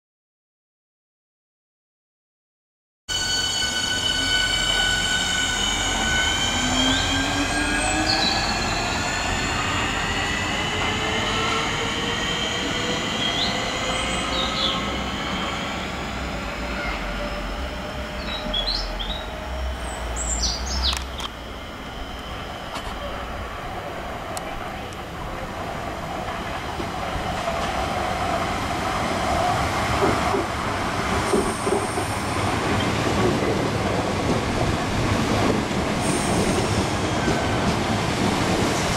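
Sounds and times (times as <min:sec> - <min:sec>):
electric train traction whine: 0:03.1 - 0:25.4
wheels rumbling on rail: 0:04.2 - 0:38.9
birds chirping: 0:11.2 - 0:15.7, 0:18.1 - 0:21.2.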